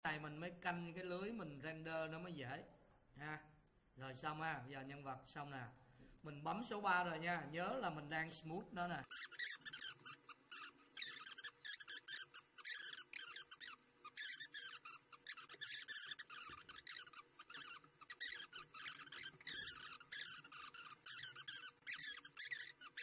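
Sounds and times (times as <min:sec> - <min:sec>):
high-pitched squeaking chirps: 0:09.0 - 0:23.0.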